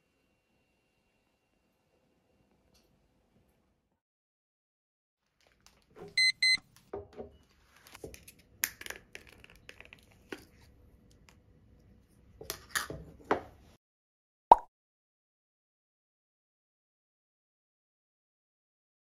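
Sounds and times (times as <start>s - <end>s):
objects handled clicking and rustling: 5.2s - 6.9s, 7.8s - 11.3s
short high electronic beeps: 6.2s - 6.6s.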